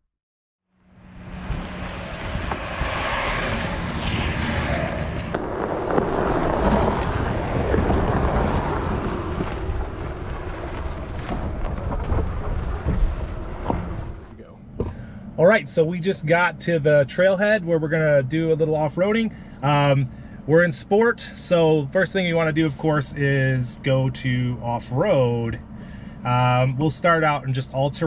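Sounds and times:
wind on microphone: 1.2 - 14.3
tyres rolling over gravel: 1.3 - 14.4.

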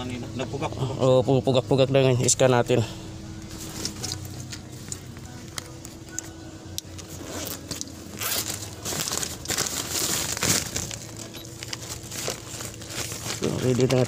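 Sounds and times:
rustling and crinkling: 3.5 - 14.0.

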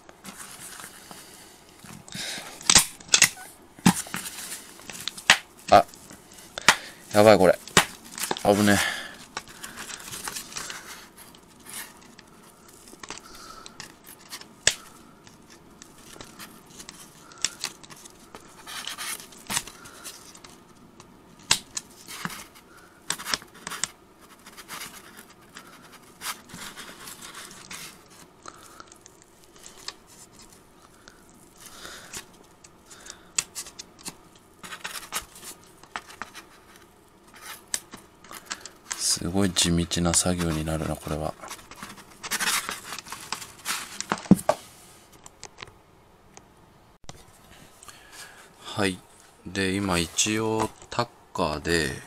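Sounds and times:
fabric rustling and scraping: 0.2 - 13.2.

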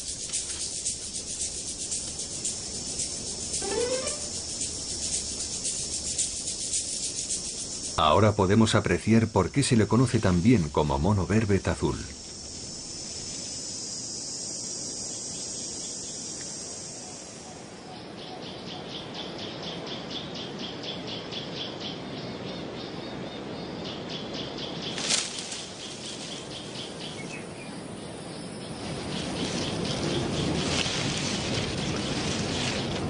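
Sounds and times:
high-pitched insect drone: 0.0 - 8.4, 11.6 - 17.4
rhythmic high insect chirping: 0.0 - 19.3, 24.4 - 33.0.

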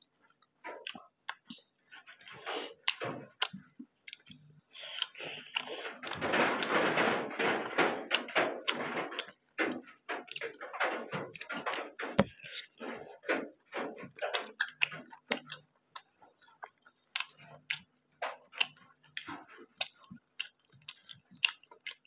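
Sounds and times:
wet chewing: 0.1 - 6.6, 7.8 - 22.0
lip-smacking: 0.8 - 6.2.

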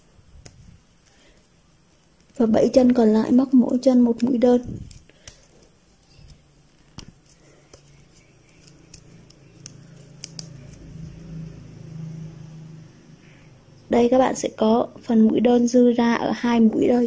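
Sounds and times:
low steady hum: 0.0 - 17.0
crochet hook clicks and rustles: 8.5 - 10.8.

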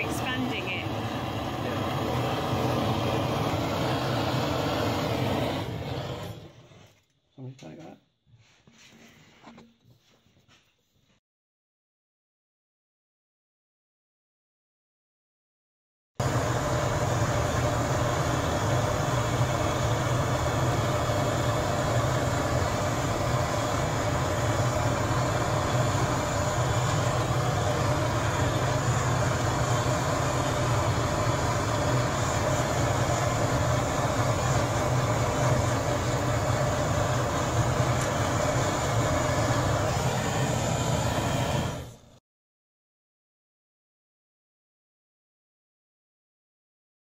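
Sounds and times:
gas torch burning: 0.0 - 8.0, 16.2 - 42.2.

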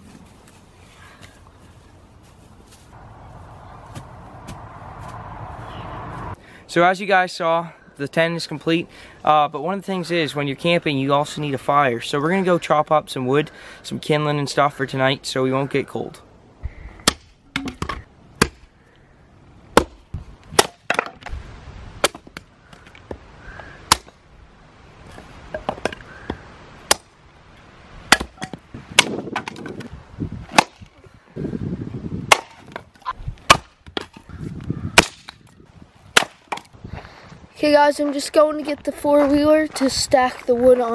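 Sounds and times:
hatchet chopping wood: 17.0 - 18.7, 19.7 - 21.3, 22.0 - 22.5, 23.9 - 24.2, 26.9 - 27.1, 28.1 - 29.9, 30.5 - 30.8, 32.3 - 32.8, 33.5 - 34.2, 35.0 - 35.4, 36.2 - 36.7.

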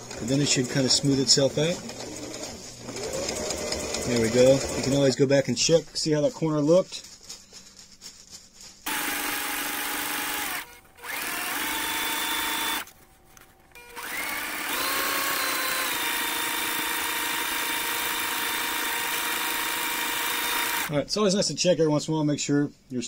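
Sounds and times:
sewing machine motor whine: 0.2 - 5.0, 8.9 - 12.9, 13.8 - 20.9.

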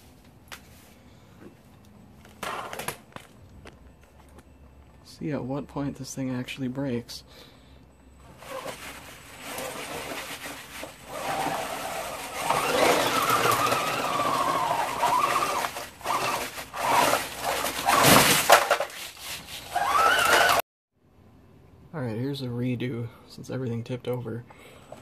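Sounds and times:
electric motor and tracks whining: 11.0 - 18.2, 19.7 - 20.6.

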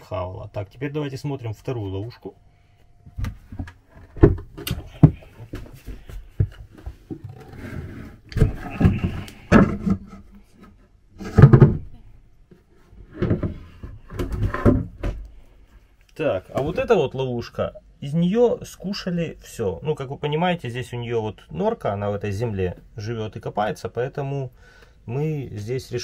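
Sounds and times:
wooden board scraping: 6.8 - 12.0, 12.6 - 15.2
clicks and wooden knocks: 8.3 - 15.4.

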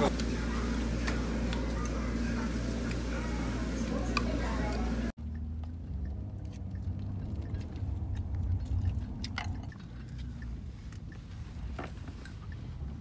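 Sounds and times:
person chewing: 5.3 - 11.4.

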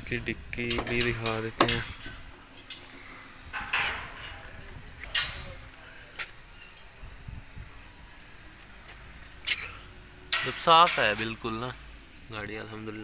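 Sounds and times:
tailgate rushing noise: 0.6 - 5.6.

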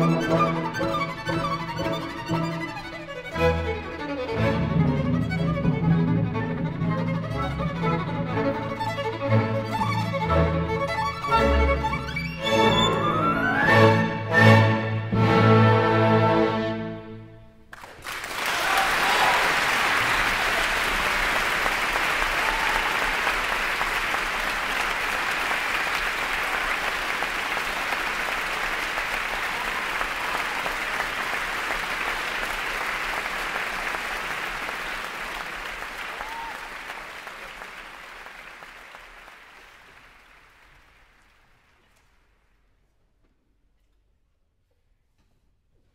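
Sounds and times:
audience applauding: 17.7 - 42.1.

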